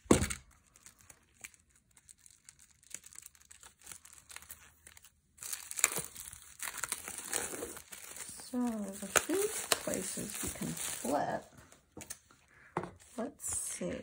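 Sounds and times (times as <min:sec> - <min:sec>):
plastic shrink wrap crinkling: 0:00.0 - 0:13.2.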